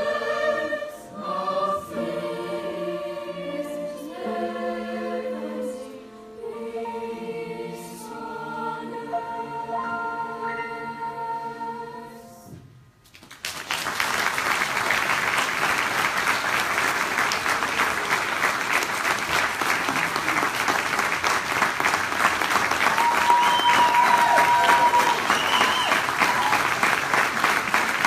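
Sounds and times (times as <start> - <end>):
choir singing: 0.0 - 12.6
audience applause: 13.2 - 28.0
held whistle: 23.0 - 26.6.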